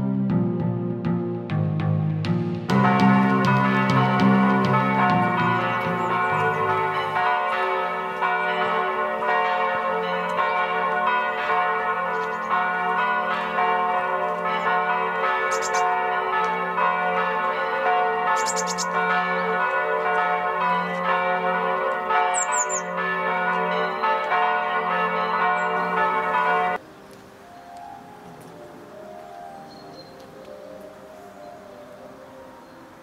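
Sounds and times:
church bells ringing: 2.6 - 33.0
bird chirping: 5.4 - 7.2, 15.5 - 15.9, 18.4 - 19.0, 22.3 - 22.9, 29.3 - 32.9.

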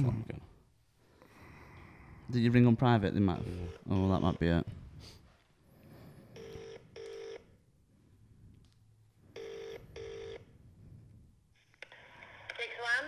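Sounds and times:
telephone ringback tone: 6.4 - 7.5, 9.4 - 10.5.

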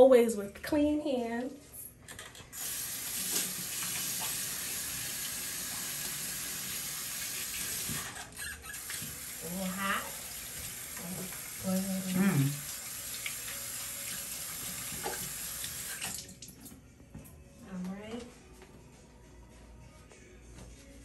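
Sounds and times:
tap water splashing into basin: 3.1 - 4.6, 10.5 - 16.7.

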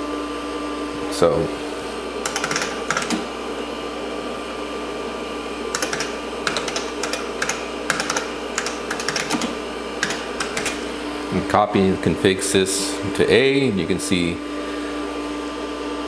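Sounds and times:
steady machine hum: 0.0 - 16.0
computer keyboard typing: 2.2 - 3.3, 5.7 - 10.9.

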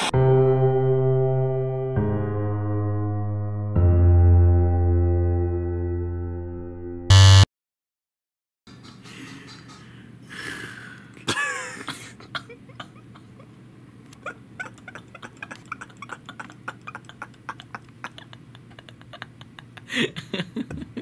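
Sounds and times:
man's stifled laughter: 11.2 - 21.0.

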